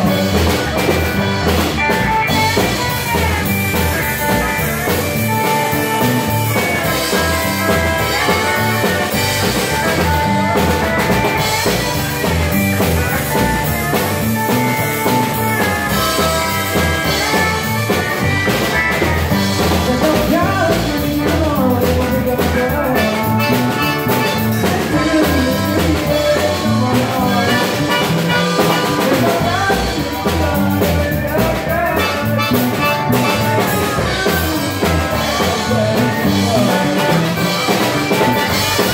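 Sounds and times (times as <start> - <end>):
live band playing: 0.0 - 38.9
button accordion: 0.6 - 19.2.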